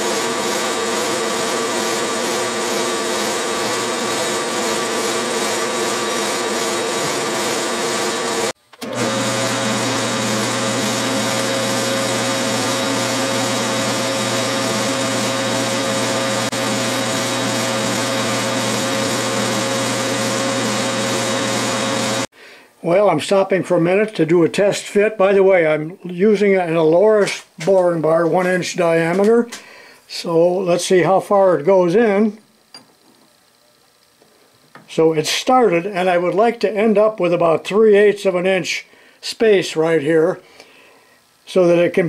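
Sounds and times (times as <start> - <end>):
metal lathe cutting: 0.0 - 22.3.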